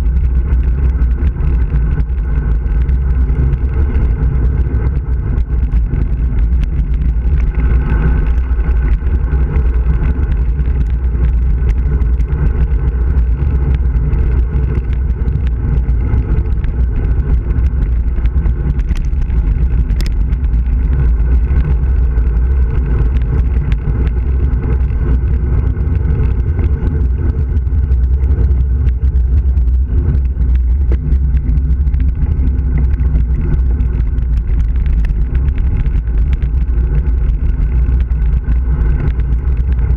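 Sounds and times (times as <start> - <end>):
tyre rumble on asphalt: 0.0 - 39.9
wind rushing over microphone: 0.0 - 39.9.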